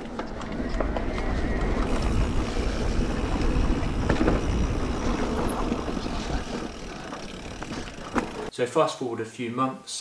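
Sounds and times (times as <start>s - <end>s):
bike tyres rolling on dirt: 0.0s - 8.5s
wind rumble on microphone: 0.2s - 6.8s
bike knocks and rattles: 1.6s - 8.5s.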